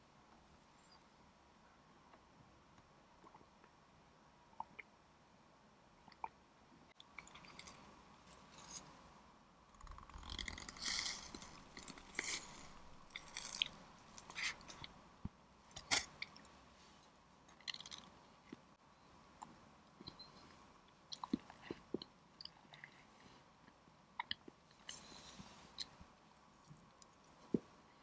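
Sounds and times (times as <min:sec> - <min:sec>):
eating sounds: 0:09.8 - 0:15.0.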